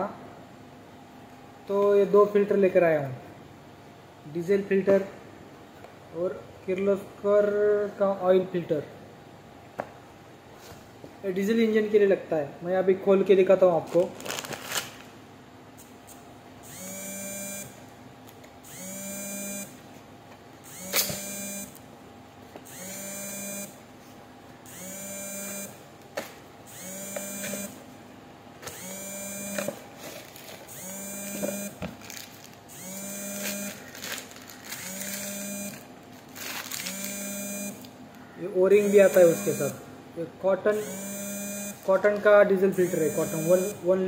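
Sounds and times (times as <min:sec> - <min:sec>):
electronic buzzer beeping: 0:16.6 - 0:17.8, 0:18.6 - 0:19.8, 0:20.6 - 0:21.8, 0:22.7 - 0:23.8, 0:24.7 - 0:25.8, 0:26.7 - 0:27.8, 0:28.7 - 0:29.8, 0:30.7 - 0:31.8, 0:32.7 - 0:35.9, 0:36.8 - 0:37.9, 0:38.8 - 0:39.8, 0:40.7 - 0:41.9, 0:42.7 - 0:43.8.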